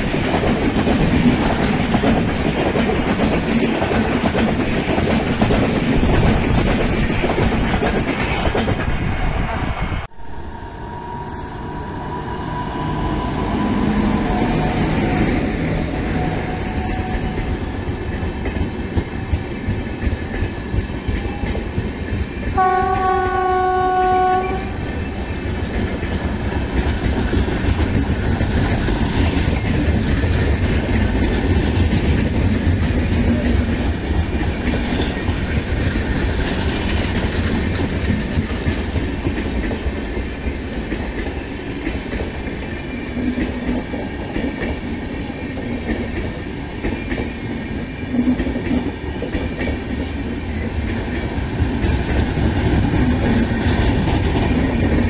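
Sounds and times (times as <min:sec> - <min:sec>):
train coaches rumbling and clattering: 0:00.0 - 0:55.0
train horn: 0:10.1 - 0:17.6, 0:22.6 - 0:24.8.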